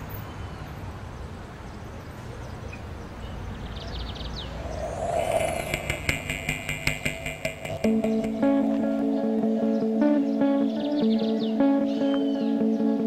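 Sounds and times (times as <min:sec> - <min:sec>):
rising swoosh: 0:04.4 - 0:09.0
guitar music with even beat: 0:05.8 - 0:13.0.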